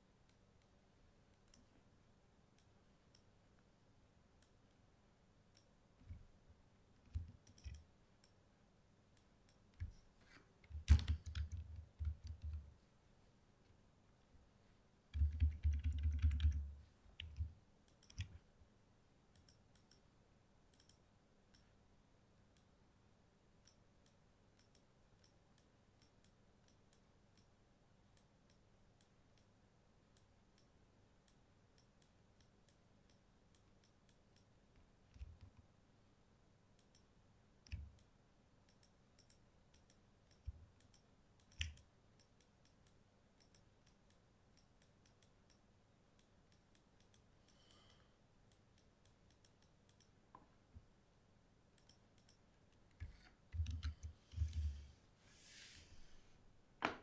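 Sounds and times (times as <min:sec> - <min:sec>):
computer mouse clicks: 0:01.3 - 0:01.7, 0:07.0 - 0:08.4, 0:15.1 - 0:18.4, 0:19.3 - 0:20.0, 0:20.7 - 0:21.7, 0:23.6 - 0:27.5, 0:30.2 - 0:35.7, 0:36.8 - 0:38.1, 0:38.7 - 0:45.6, 0:46.2 - 0:50.5, 0:51.8 - 0:54.8
keyboard clicks: 0:07.0 - 0:08.4, 0:10.6 - 0:12.7, 0:15.1 - 0:18.4, 0:53.0 - 0:54.8.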